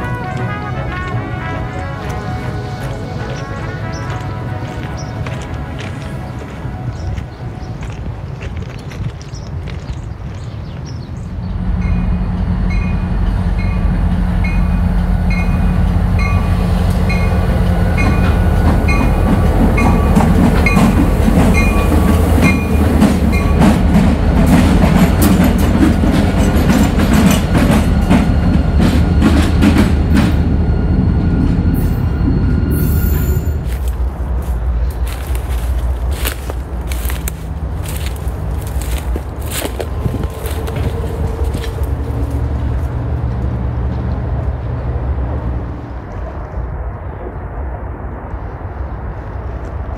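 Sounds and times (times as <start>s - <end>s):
train cars rumbling past: 0.0s - 49.9s
train drone: 0.0s - 49.9s
wheels clacking over rail joints: 7.8s - 30.6s
crossing bell dinging: 11.4s - 34.0s.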